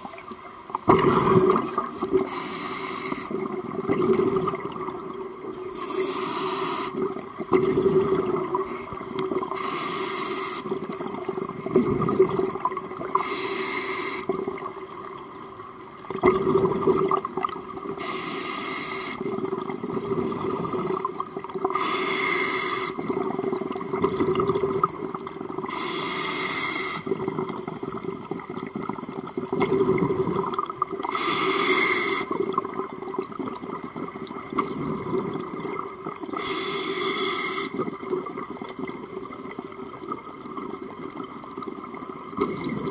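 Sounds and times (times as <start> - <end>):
regulator breathing underwater: 0.2 - 3.6, 5.7 - 7.1, 7.9 - 11.0, 13.0 - 14.6, 18.0 - 20.0, 21.6 - 23.8, 25.7 - 27.5, 31.0 - 32.5, 36.3 - 38.1
exhaled bubbles rushing: 0.8 - 2.3, 3.2 - 5.8, 6.9 - 9.6, 10.6 - 13.2, 16.0 - 18.0, 19.2 - 21.7, 23.0 - 25.7, 27.0 - 31.0, 32.3 - 36.3, 37.8 - 42.9.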